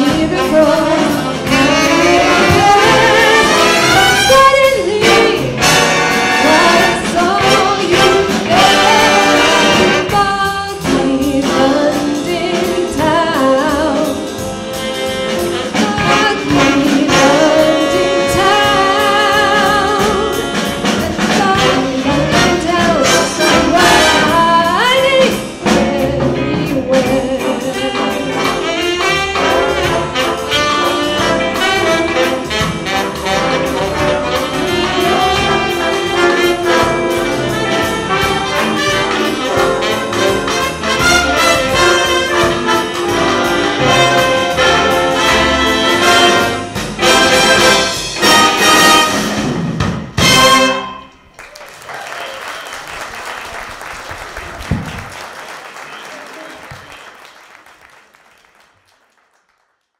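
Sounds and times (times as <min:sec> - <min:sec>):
woman singing: 0:00.0 - 0:05.8, 0:06.4 - 0:14.3, 0:15.7 - 0:28.6
jazz big band playing: 0:00.0 - 0:57.8.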